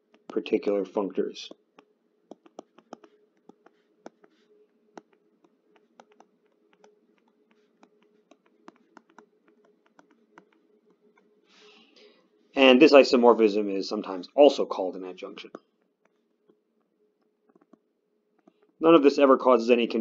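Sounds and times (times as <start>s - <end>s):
stylus tapping on screen: 0.0s - 0.6s, 1.4s - 11.3s, 15.4s - 18.8s
faint steady hum: 0.0s - 20.0s.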